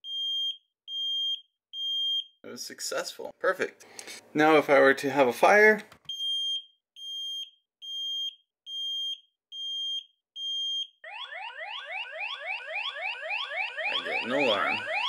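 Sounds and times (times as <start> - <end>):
smoke alarm beeps: 0.0 - 2.4, 6.1 - 11.4, 12.0 - 15.0
rising whoop electronic alarm: 11.0 - 15.0.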